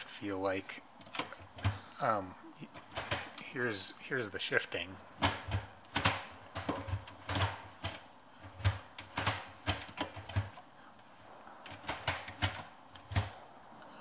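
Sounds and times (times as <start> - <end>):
gear lever clicking and clunking: 1.0 - 1.9, 2.7 - 3.5, 5.2 - 10.7, 11.6 - 13.4.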